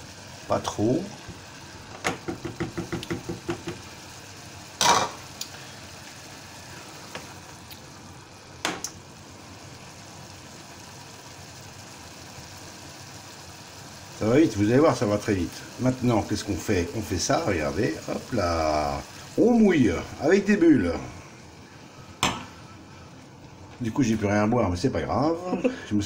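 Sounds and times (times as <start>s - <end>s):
vegetables sizzling faintly: 0.0s - 26.0s
spatula knocking in saucepan: 2.0s - 3.8s.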